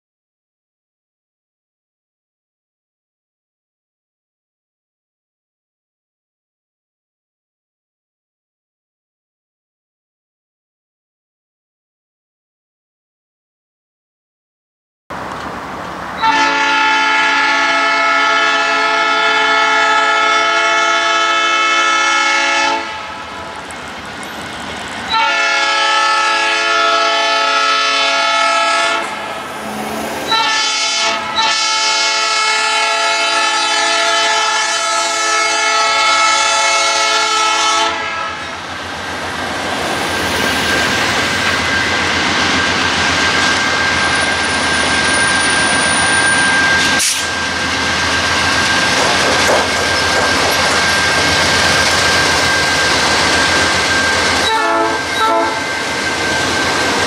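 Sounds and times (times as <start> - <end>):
diesel locomotive engines rumbling: 15.1 - 57.0
locomotive air horn blasts: 16.2 - 23.5, 25.1 - 29.3, 30.3 - 38.6, 54.4 - 55.8.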